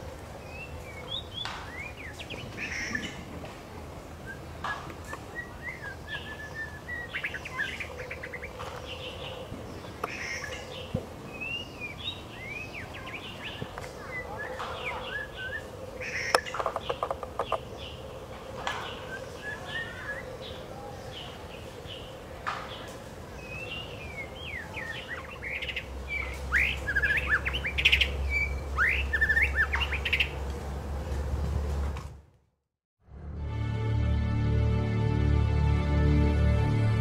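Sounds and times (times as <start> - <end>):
bird singing whistled phrases: 4.2 - 8.5, 23.5 - 30.3.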